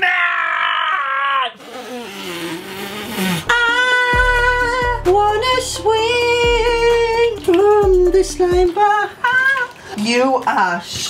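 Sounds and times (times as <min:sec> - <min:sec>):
music with long held notes: 0:03.5 - 0:08.8.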